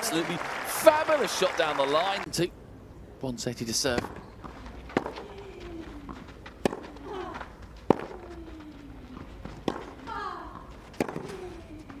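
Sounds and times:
racquet hitting tennis ball: 6.5 - 7.0, 7.8 - 8.2, 9.6 - 11.5.

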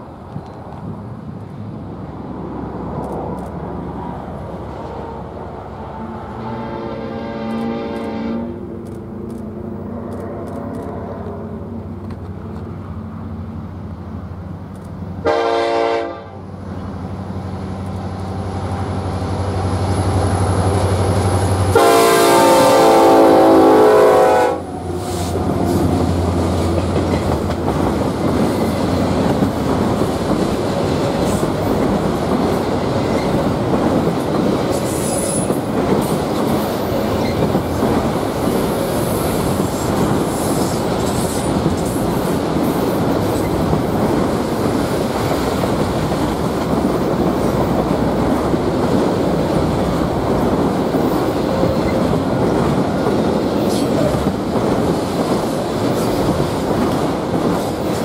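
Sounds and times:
train wheels on rails: 0.0 - 6.4, 7.4 - 58.0
locomotive engine drone: 0.0 - 58.0
train horn blasts: 6.0 - 8.6, 15.2 - 16.5, 21.6 - 24.9.

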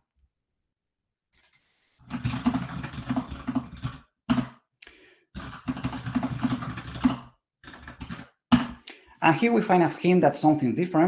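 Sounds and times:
rapid typing on keyboard: 1.4 - 4.6, 5.3 - 8.8.

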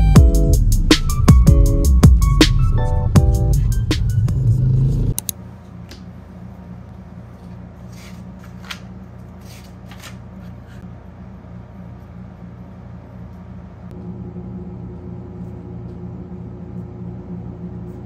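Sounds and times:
loud low rumble: 2.7 - 5.2
notebook pages rustling: 7.3 - 10.8.

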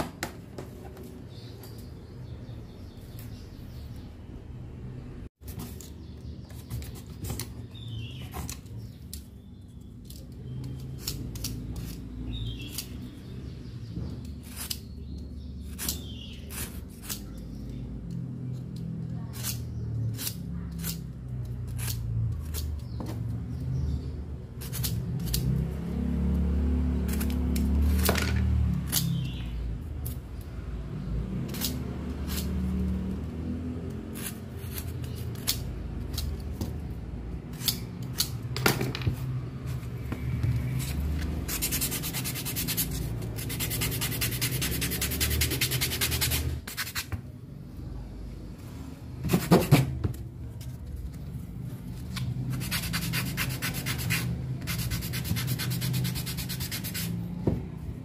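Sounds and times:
rubbing and scraping: 40.5 - 47.1, 49.2 - 57.3.

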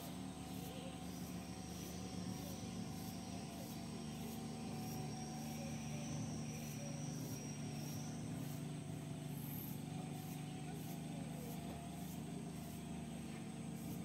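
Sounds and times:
high-pitched insect pulses: 0.0 - 14.0
low mechanical hum: 0.0 - 14.0.

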